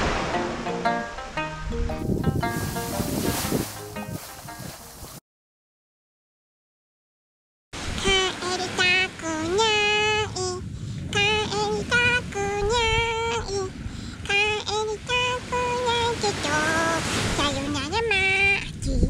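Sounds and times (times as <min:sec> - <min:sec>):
high-pitched voice singing: 0:08.0 - 0:19.0.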